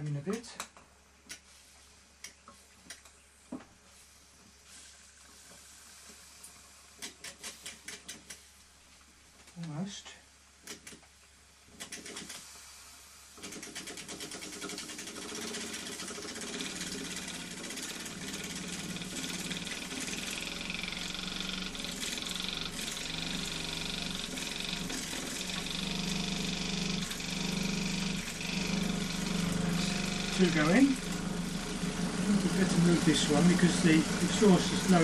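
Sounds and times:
model steam engine running: 13.4 - 35.0.

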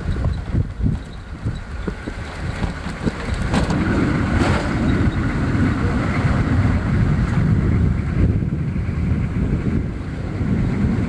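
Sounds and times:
vehicle bumps: 0.0 - 6.0
vehicle engine and tyre rumble: 0.0 - 11.0
wind noise on microphone: 0.0 - 11.0.

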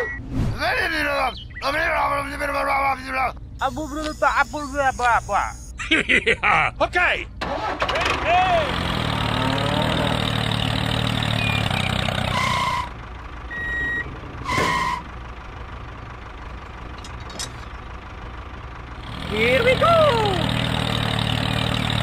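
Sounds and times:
short beeps: 0.0 - 0.4, 3.6 - 5.8
tractor engine idling: 10.0 - 22.0.

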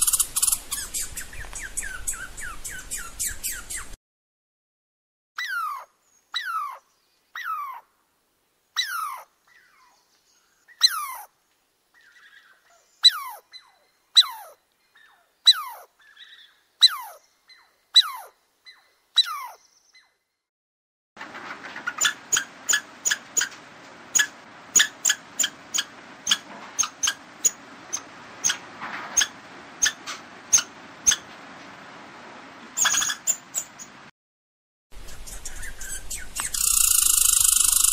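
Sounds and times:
squirrel alarm chirps: 0.0 - 4.0, 24.2 - 28.6, 29.2 - 31.2, 32.8 - 33.9, 35.0 - 37.9
squirrel whistle-like cries: 0.0 - 4.0, 5.4 - 6.8, 12.0 - 20.1, 35.0 - 37.9.

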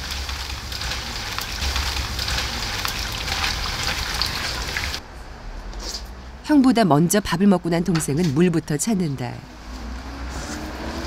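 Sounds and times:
food sizzling in hot oil: 0.0 - 5.0.

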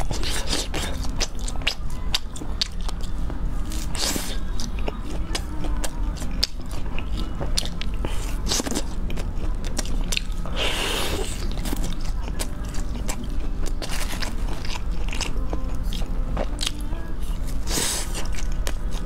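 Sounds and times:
crisp chewing crunches: 0.0 - 19.0
low steady hum: 0.0 - 19.0.

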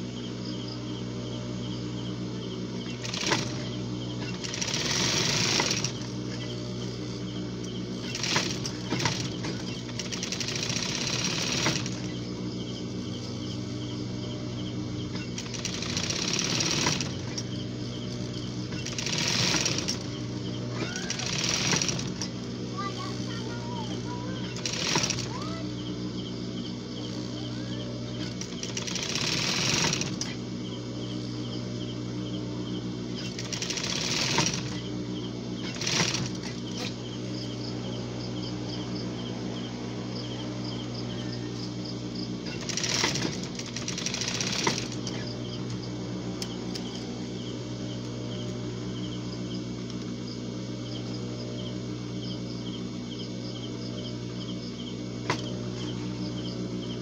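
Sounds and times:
sewing machine motor humming: 0.0 - 57.0.

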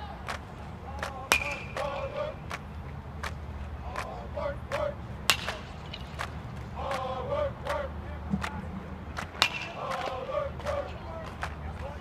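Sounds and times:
players calling and chattering: 0.0 - 12.0
bat hitting baseball: 1.0 - 2.6, 5.2 - 6.4, 9.2 - 10.1.

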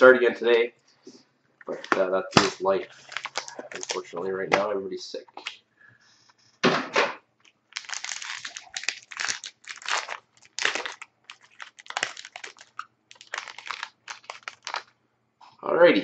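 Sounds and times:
plastic wrapper tearing and crinkling: 2.3 - 4.6, 7.4 - 15.0.

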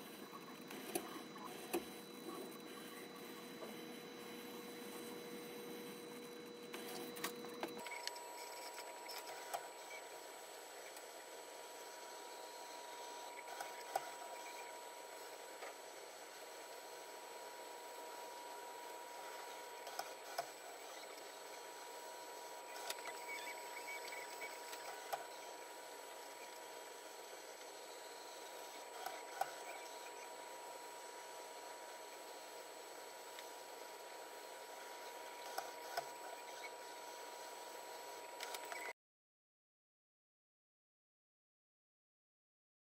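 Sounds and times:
robot arm mechanical hum: 0.0 - 17.4, 18.1 - 31.1.

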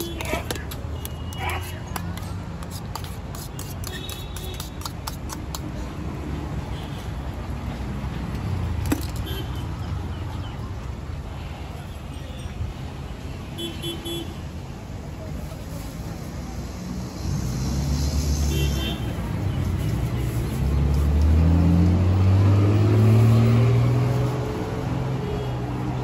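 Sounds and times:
vehicle engine passing: 20.5 - 25.1.

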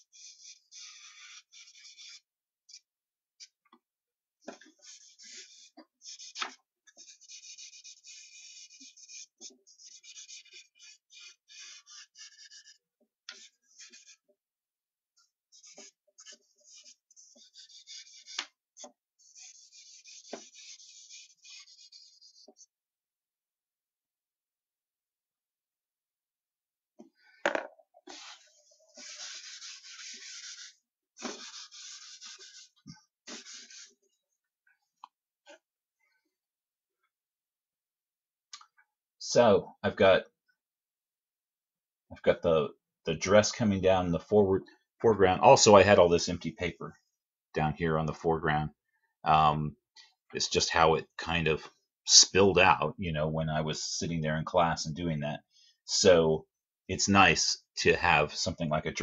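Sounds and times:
charcoal scraping on paper: 0.0 - 3.6, 4.8 - 14.3, 15.5 - 22.7, 28.1 - 34.0.

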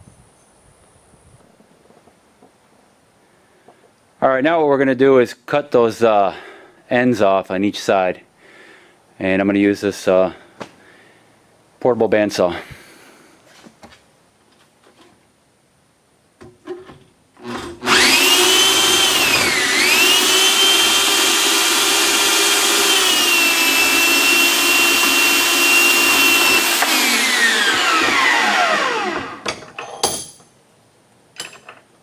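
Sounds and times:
bandsaw motor whining: 17.4 - 29.5
metal clanks: 29.4 - 30.6, 31.3 - 31.9.

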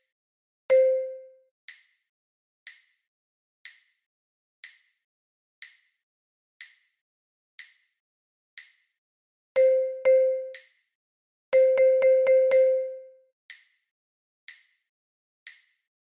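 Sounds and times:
wood-block clicks keeping a beat: 0.7 - 1.9, 2.7 - 3.0, 3.6 - 3.9, 4.6 - 5.0, 5.6 - 5.9, 6.6 - 7.0, 7.6 - 7.9, 8.6 - 8.9, 9.6 - 10.8, 11.5 - 13.8, 14.5 - 14.8, 15.5 - 15.8.

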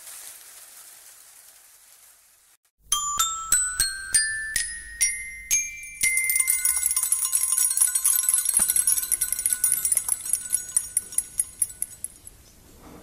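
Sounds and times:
xylophone notes ringing: 2.8 - 12.2
small jingle bells shaken: 2.9 - 12.3.

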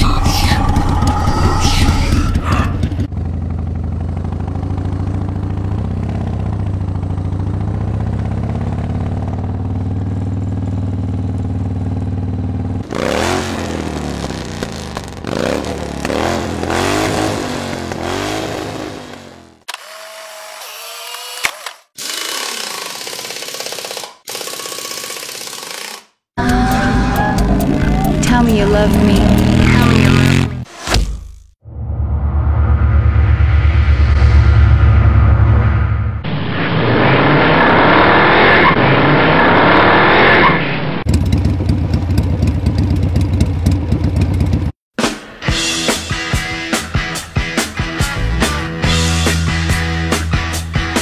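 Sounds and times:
motorcycle engine idling and revving: 0.0 - 22.0, 22.6 - 31.6, 40.9 - 44.8.

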